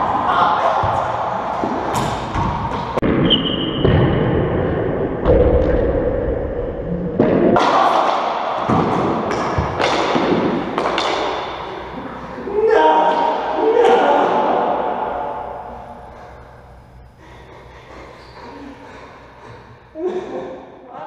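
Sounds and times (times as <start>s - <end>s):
racquetball hits echoing: 0.7s - 6.3s, 7.2s - 17.0s.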